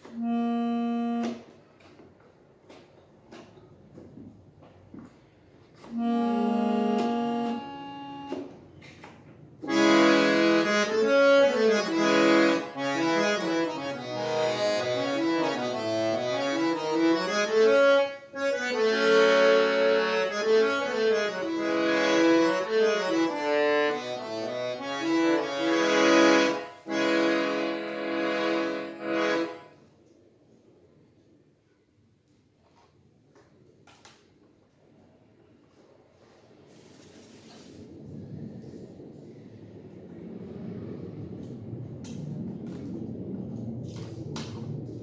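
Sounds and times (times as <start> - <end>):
harmonium playing: 0.0 - 1.6, 5.8 - 8.6, 9.6 - 29.8.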